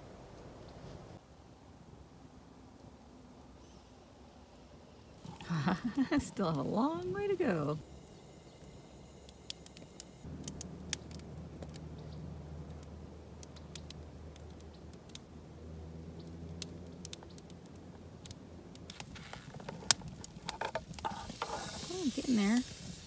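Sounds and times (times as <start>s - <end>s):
distant engine hum: 5.2s - 22.5s
campfire crackling and popping: 5.2s - 23.0s.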